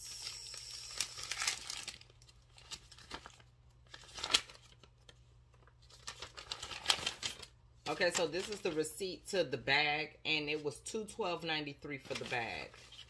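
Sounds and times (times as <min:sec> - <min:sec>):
paper crinkling: 0:00.9 - 0:08.9, 0:12.0 - 0:13.0.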